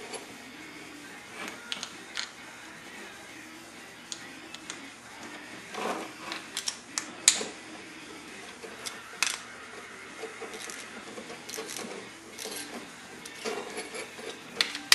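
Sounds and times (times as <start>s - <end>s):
metal parts clicking and tapping: 4.1s - 4.9s, 5.8s - 7.6s, 8.5s - 9.5s, 10.2s - 14.9s
metal scrape: 5.2s - 6.7s, 7.3s - 14.7s.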